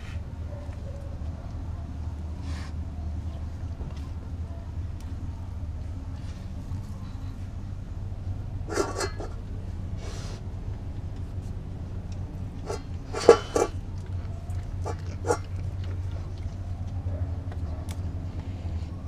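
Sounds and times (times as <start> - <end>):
steady low hum: 0.0 - 19.0
dog licking and chewing at bowl: 12.6 - 17.6.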